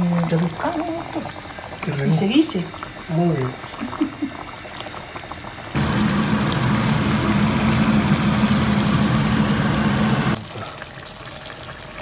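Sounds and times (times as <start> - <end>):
low machine hum with hiss: 5.8 - 10.4.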